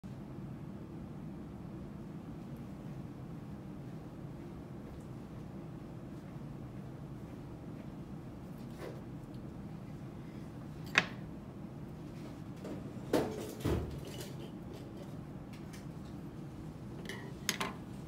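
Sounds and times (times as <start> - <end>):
room hum: 0.0 - 18.0.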